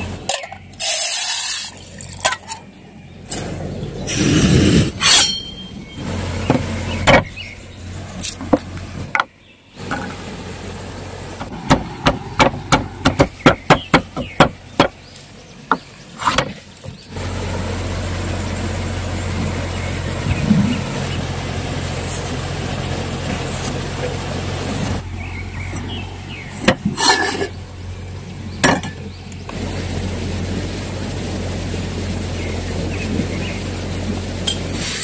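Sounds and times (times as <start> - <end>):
pestle pounding in wooden mortar: 11.5 - 15.0.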